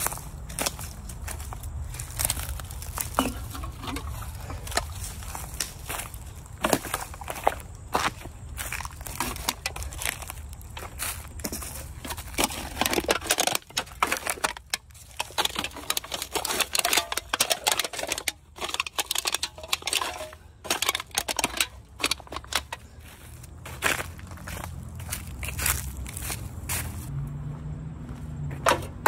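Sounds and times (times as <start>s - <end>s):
crackles and clicks: 0.0s - 22.8s
plastic and leaves crinkling: 0.0s - 27.1s
rummaging through litter: 0.7s - 23.6s.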